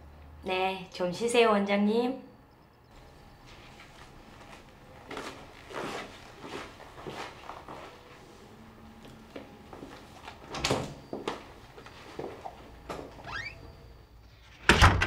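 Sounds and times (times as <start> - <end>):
door creaking: 12.4 - 13.9.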